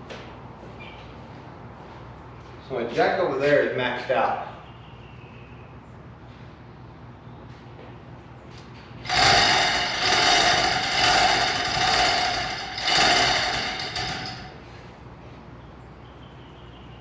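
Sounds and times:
metallic chain rattle: 9.0 - 14.6.

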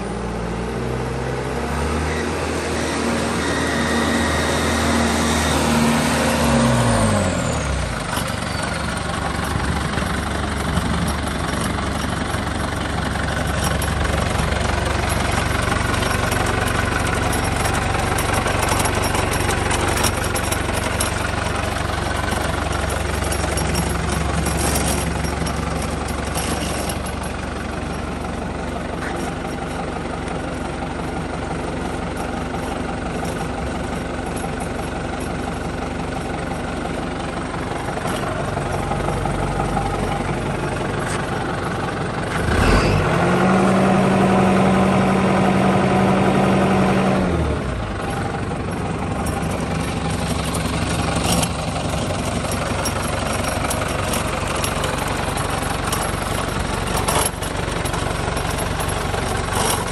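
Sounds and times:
tractor diesel engine: 0.0 - 59.9.

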